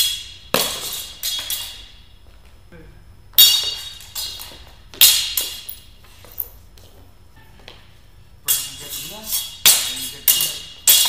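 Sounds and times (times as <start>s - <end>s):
swords clashing: 0.0s - 1.9s, 3.4s - 5.8s, 8.5s - 11.0s.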